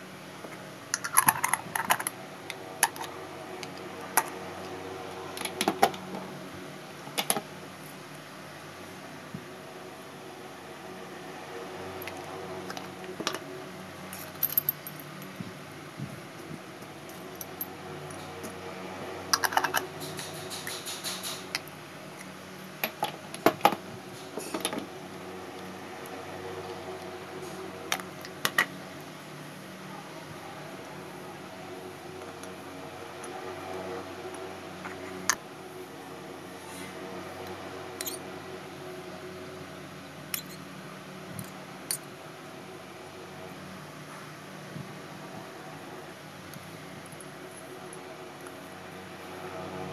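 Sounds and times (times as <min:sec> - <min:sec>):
low steady hum: 0:00.0 - 0:49.9
glass jars and spoon clinking: 0:40.4 - 0:40.6.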